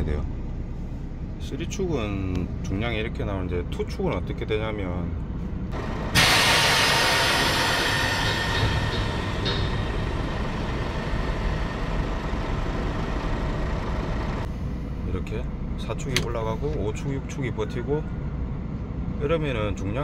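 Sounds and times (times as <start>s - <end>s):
diesel truck engine idling: 0.0s - 19.5s
compressed air hiss: 6.2s - 9.7s.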